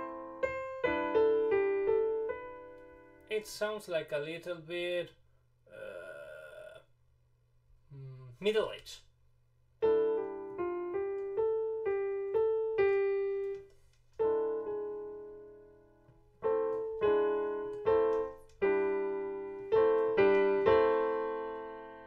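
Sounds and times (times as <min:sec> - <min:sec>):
piano melody in a minor key: 0:00.0 - 0:03.3, 0:09.8 - 0:22.0.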